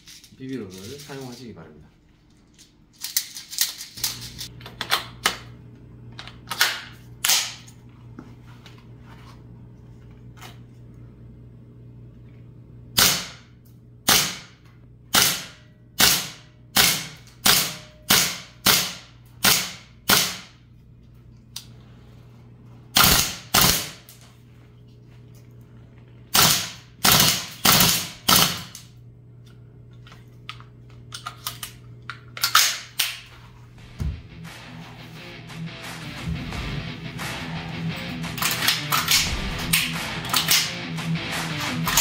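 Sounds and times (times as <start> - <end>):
airsoft rifle shots: 13.0 - 13.5, 14.1 - 20.6, 23.0 - 24.1, 26.3 - 28.8, 38.3 - 42.0.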